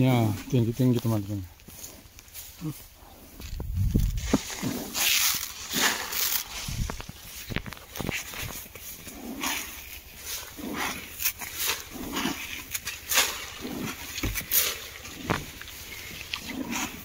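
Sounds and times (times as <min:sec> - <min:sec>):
footsteps through tall grass: 0:00.0 - 0:17.0.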